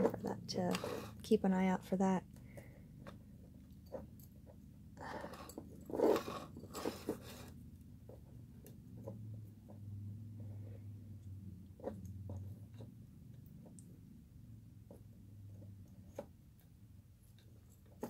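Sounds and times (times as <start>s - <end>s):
wire rustling and scraping: 0.0s - 1.2s, 5.2s - 7.6s
low steady hum: 0.0s - 18.0s.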